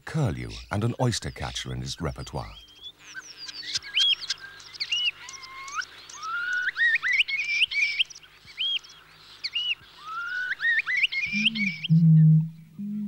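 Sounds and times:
starling singing: 9.5s - 12.2s.

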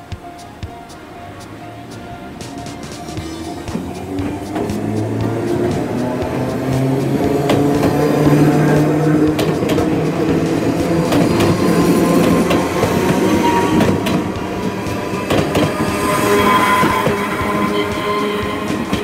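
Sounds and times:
train rumble: 0.0s - 19.0s
train wheels clicking on rail joints: 0.1s - 19.0s
high wheel squeal: 0.9s - 19.0s.

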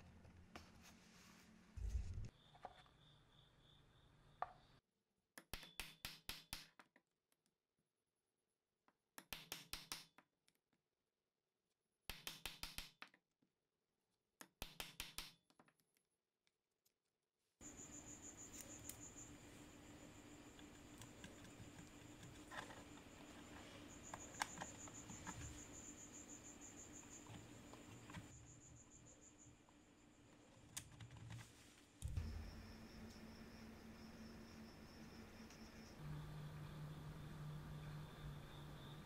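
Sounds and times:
faint hiss with high whine: 32.0s - 39.0s.

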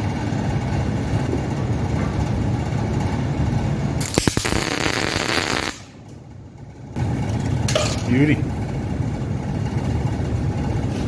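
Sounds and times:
steady low hum: 0.0s - 11.0s
welding arc crackle and hiss: 4.0s - 6.0s.

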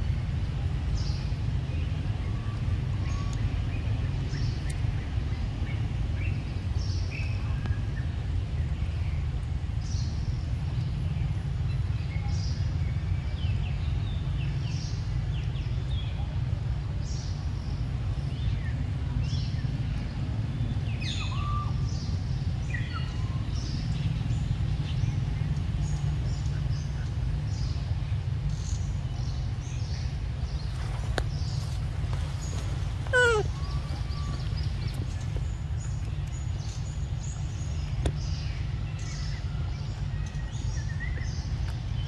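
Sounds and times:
steady low rumble: 0.0s - 42.0s
birds chirping and calling: 19.3s - 42.0s.

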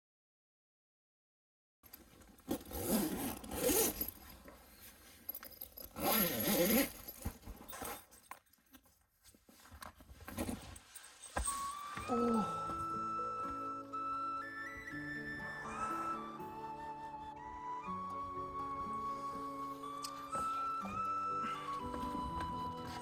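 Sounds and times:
scraping and rustling: 1.9s - 12.0s
zipper pulled: 2.3s - 8.3s.

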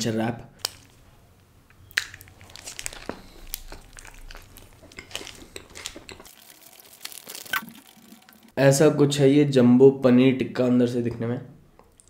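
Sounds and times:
biting and chewing food: 1.8s - 8.5s
paper wrapper crinkling: 1.9s - 8.5s.

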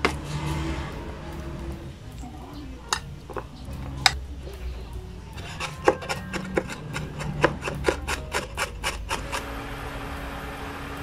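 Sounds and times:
knife chopping on cutting board: 5.6s - 9.4s.

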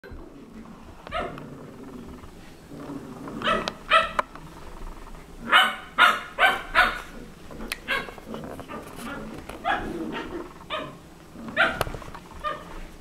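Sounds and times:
puppy yapping: 3.4s - 4.2s, 5.5s - 12.8s.

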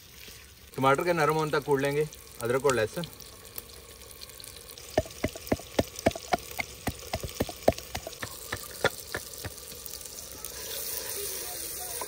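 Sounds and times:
mortar and pestle pounding: 5.0s - 9.6s.

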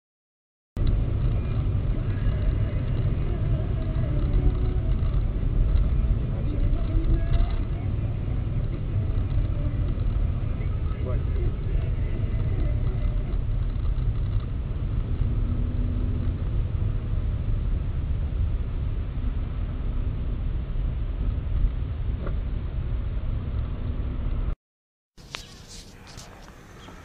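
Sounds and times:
car engine and tyre rumble: 0.8s - 24.6s, 25.2s - 27.0s.

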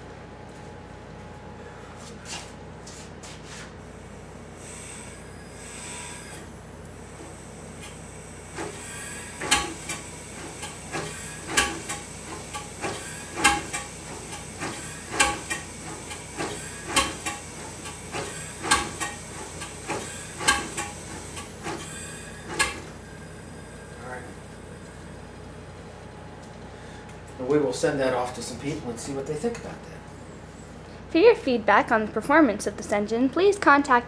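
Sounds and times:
steam engine exhaust puffs: 7.0s - 25.1s.

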